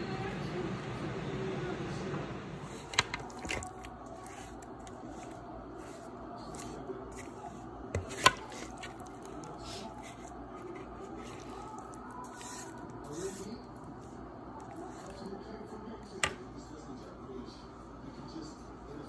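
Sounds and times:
spatula scraping and squishing: 2.6 - 15.3.

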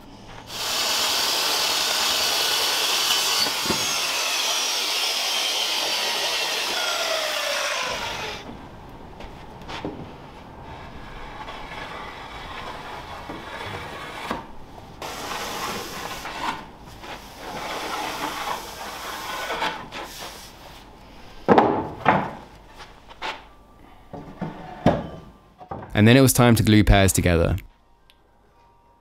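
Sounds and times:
wooden boards knocking: 21.5 - 22.4.

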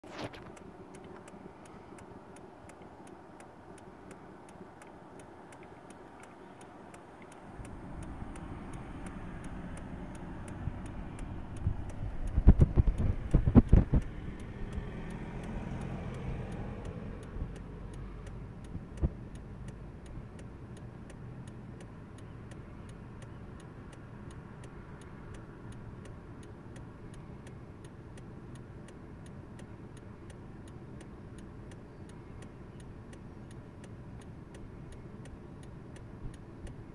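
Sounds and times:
faint even ticking: 0.4 - 36.9
car driving past: 7.5 - 18.3.

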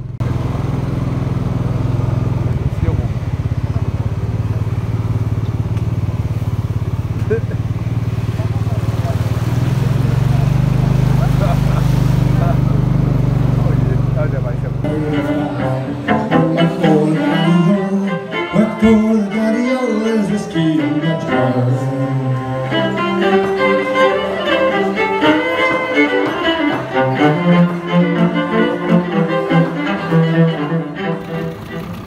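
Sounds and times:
low held notes: 0.0 - 32.0
violin bowed melody: 8.5 - 32.0.

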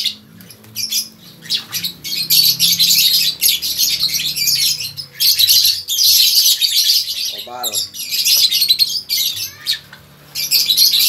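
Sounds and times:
lovebirds chirping and squawking: 0.0 - 11.0.

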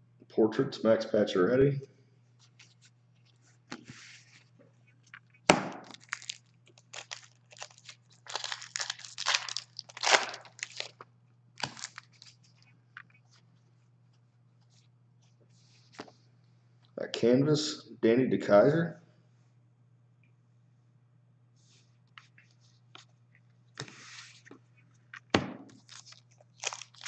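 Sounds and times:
low steady hum: 0.0 - 27.0
wrapper cracking: 5.8 - 11.0, 11.6 - 12.3, 25.8 - 27.0
wrapper crinkling and rustling: 5.8 - 12.6, 25.7 - 27.0.

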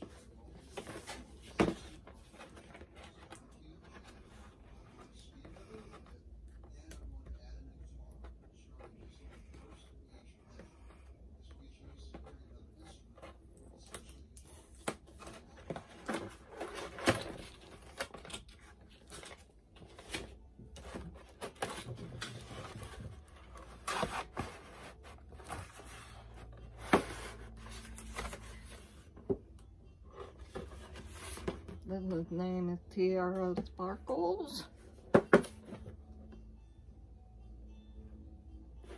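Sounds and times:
cardboard rustling and tearing: 14.9 - 29.0.

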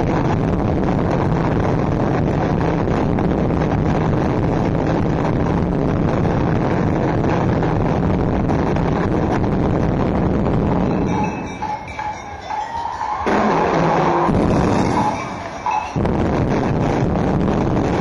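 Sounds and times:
drum and percussion music: 10.8 - 17.0.

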